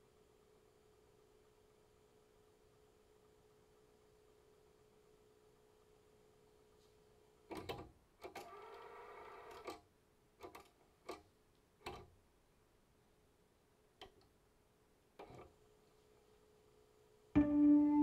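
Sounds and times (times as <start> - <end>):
faint steady test tone: 17.4 - 18.0.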